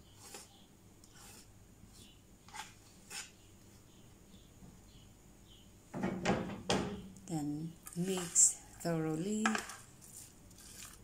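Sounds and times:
soft swishes of scraping food: 0.0s - 3.4s, 7.8s - 11.0s
spatula scraping and clattering: 7.8s - 11.0s.

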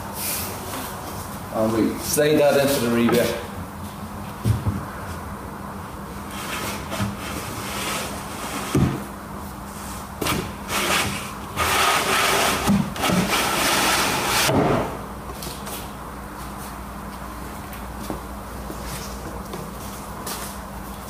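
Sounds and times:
wooden panel scraping in grooves: 10.7s - 14.5s.

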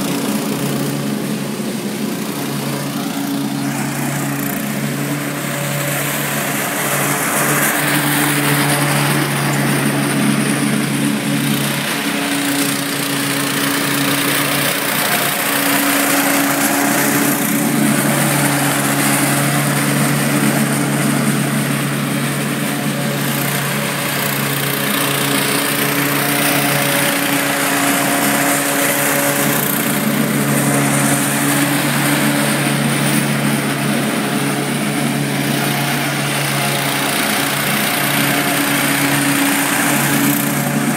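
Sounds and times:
lawn mower engine running: 0.0s - 40.9s.

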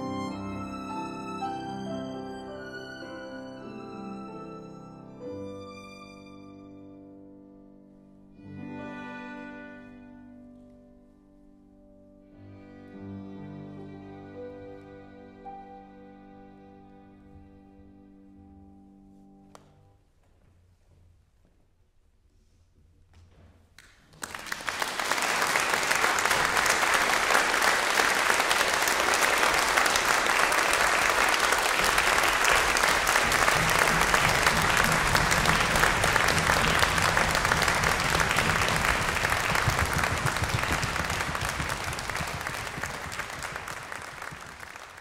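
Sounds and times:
concert audience applauding: 23.8s - 45.0s.

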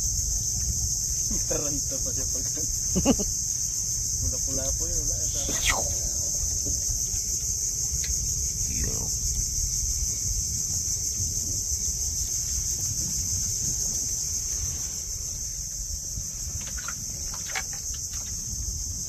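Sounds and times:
low rumble: 3.8s - 16.4s
high-pitched insect-like buzz: 5.1s - 7.4s
short voice sounds: 5.3s - 6.4s.

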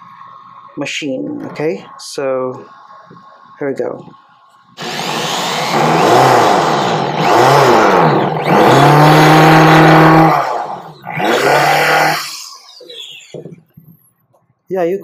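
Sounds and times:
electric drill motor whine: 1.8s - 13.5s
drill driving screw into wood: 4.8s - 13.4s.

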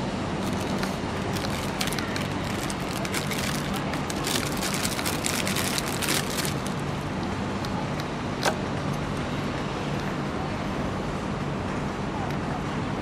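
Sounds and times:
low background rumble: 0.0s - 13.0s
plastic wrapping crinkling: 0.4s - 7.1s.

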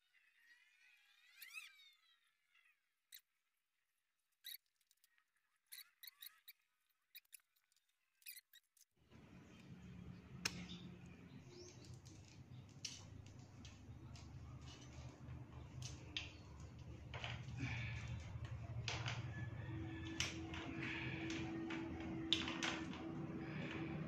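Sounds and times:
metallic clicks and squeaks: 1.0s - 2.1s, 4.4s - 9.8s, 10.4s - 24.0s
low background hum: 9.1s - 24.0s.

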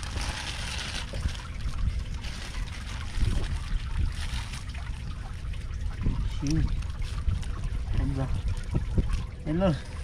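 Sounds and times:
wet weeds rustling and crackling: 0.0s - 5.4s
water trickling: 0.0s - 10.0s.

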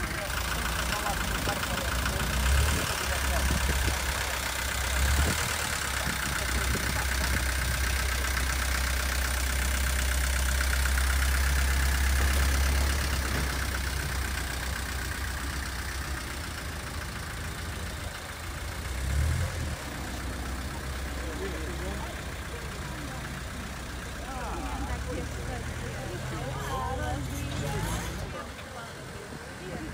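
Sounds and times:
fire truck engine idling: 0.0s - 29.9s.

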